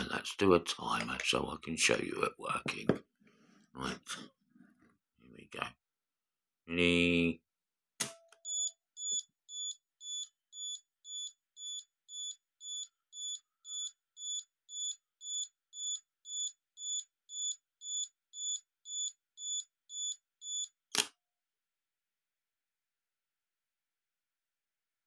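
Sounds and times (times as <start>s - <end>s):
high-pitched self-timer beeps: 8.4s - 20.7s.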